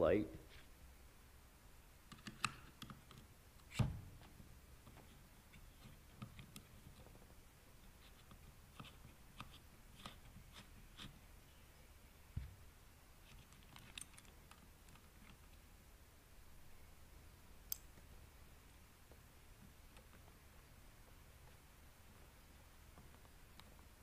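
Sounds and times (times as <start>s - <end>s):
faint metal clicks and scrapes: 13.2s - 15.6s.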